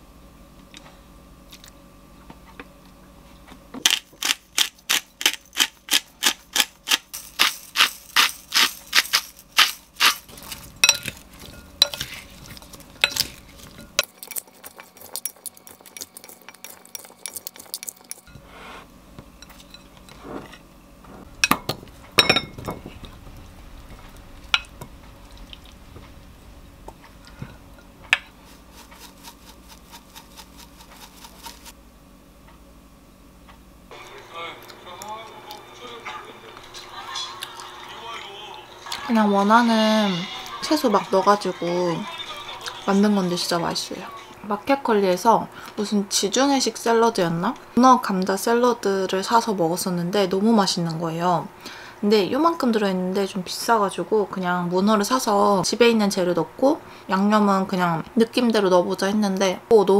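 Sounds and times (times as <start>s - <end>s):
utensils clicking in glass bowl: 3.9s - 12.0s.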